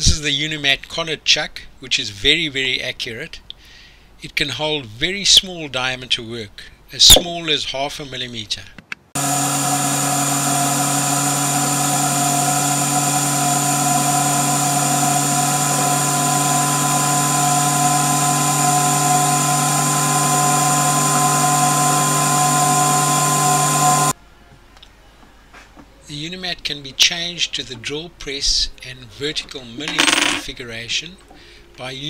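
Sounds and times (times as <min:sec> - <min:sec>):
small lathe running: 0:09.2 - 0:24.2.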